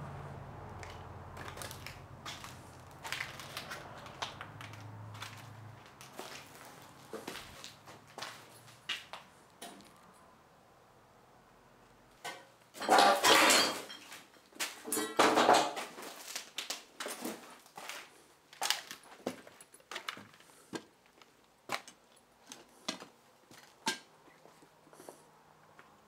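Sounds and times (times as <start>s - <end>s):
footsteps crunching through debris: 0.8s - 9.9s, 15.7s - 23.8s.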